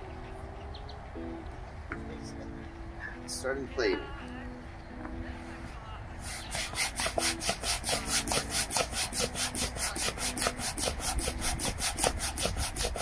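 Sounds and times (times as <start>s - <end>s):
hand pump air rushes: 6.2s - 13.0s.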